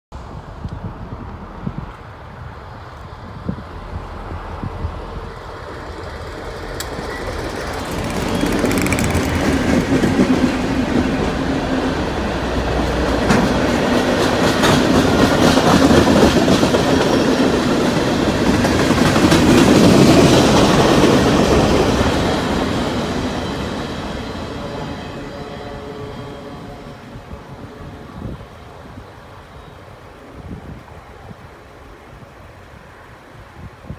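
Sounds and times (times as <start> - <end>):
locomotive rumble: 2.7 - 28.9
train wheels clattering over rails: 5.3 - 25.0.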